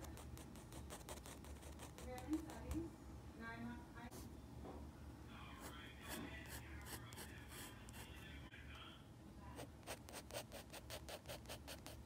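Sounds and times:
pencil scratching on paper: 0.0s - 2.8s, 5.6s - 8.2s, 9.8s - 12.0s.

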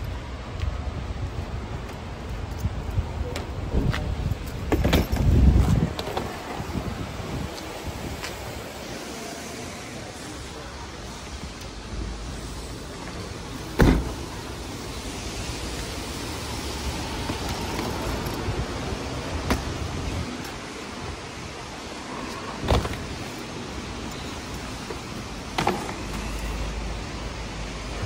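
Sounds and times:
traffic noise: 0.0s - 28.0s
tailgate slamming shut: 13.7s - 14.3s, 22.6s - 23.1s.

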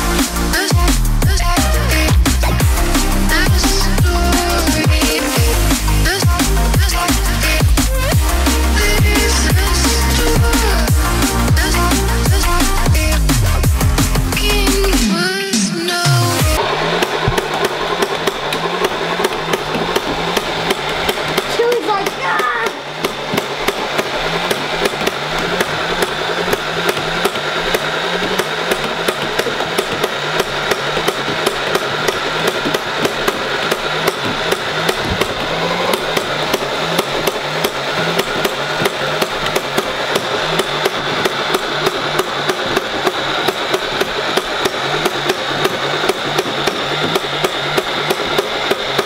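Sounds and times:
flywheel motors whirring: 0.0s - 49.0s
toy blaster firing rapidly: 16.6s - 49.0s.

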